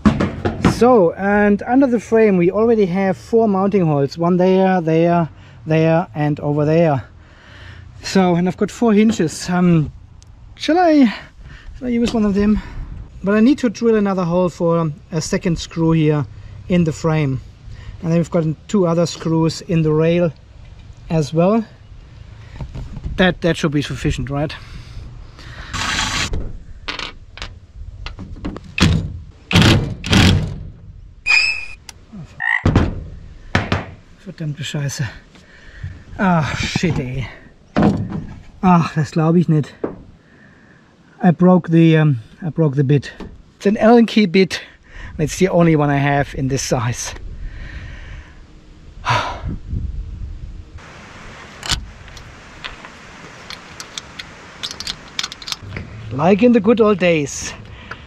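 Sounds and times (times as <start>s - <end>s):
allen key clicking on screw: 53.5s - 55.6s.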